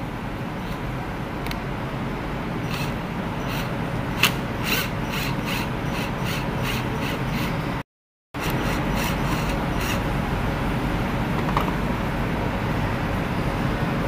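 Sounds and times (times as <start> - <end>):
drill clutch clicking: 2.7 - 7.6, 8.4 - 10.1
cordless drill motor running: 2.7 - 7.7, 8.4 - 10.1.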